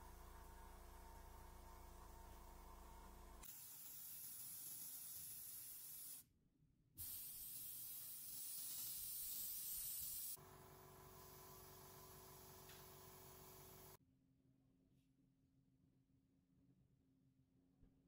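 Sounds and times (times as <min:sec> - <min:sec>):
airbrush spraying air hiss: 0:03.4 - 0:06.2, 0:07.0 - 0:10.4, 0:11.1 - 0:14.0.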